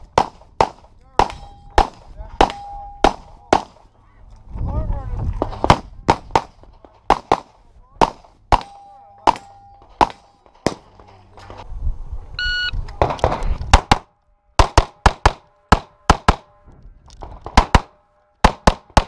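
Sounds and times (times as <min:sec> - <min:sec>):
pistol shots: 0:00.1 - 0:03.9, 0:05.5 - 0:11.0, 0:13.0 - 0:16.5, 0:17.4 - 0:19.0
shot timer beep: 0:12.4 - 0:12.8.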